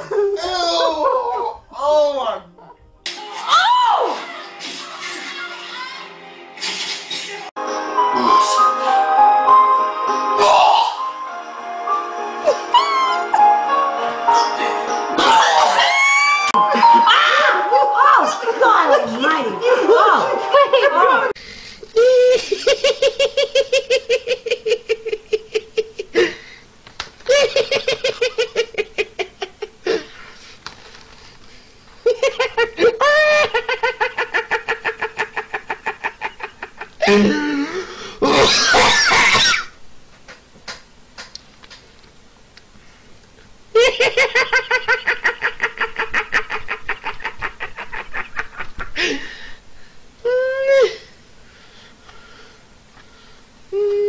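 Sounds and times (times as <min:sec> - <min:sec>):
man laughing uncontrollably: 0:27.3 - 0:29.8, 0:32.1 - 0:37.4, 0:43.8 - 0:49.0.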